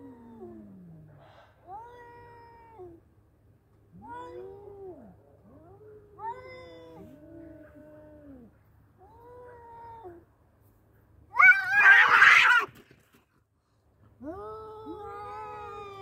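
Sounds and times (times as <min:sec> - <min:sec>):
cats caterwauling: 0:04.0 - 0:10.2, 0:11.4 - 0:12.7.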